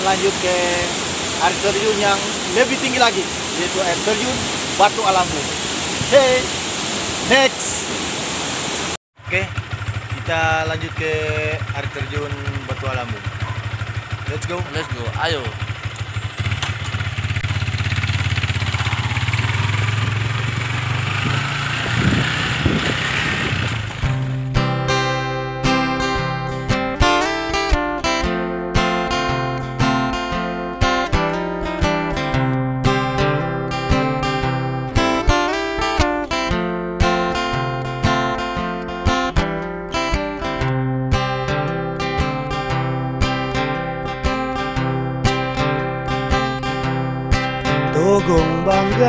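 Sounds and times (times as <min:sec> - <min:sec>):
rushing wind noise: 0:00.0 - 0:09.0, 0:18.7 - 0:24.2
motorcycle engine: 0:09.2 - 0:24.6.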